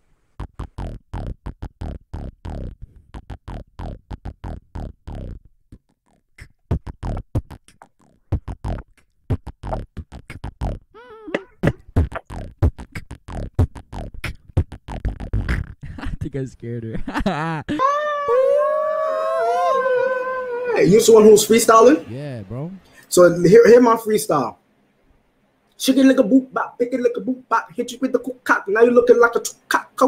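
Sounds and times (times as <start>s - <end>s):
beatboxing into microphone: 0.4s - 5.4s, 6.4s - 17.8s, 22.0s - 23.0s
wavering vocal note: 21.9s - 22.8s.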